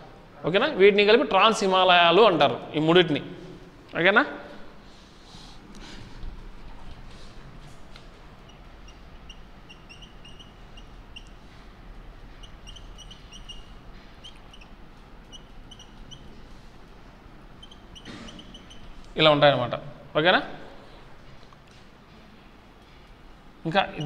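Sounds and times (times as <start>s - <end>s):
marker squeaking on a whiteboard: 7.6s - 19.2s, 23.7s - 24.0s.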